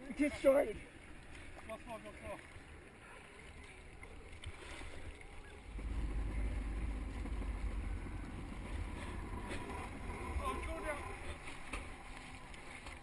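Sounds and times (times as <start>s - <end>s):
jet ski running: 5.0s - 13.0s.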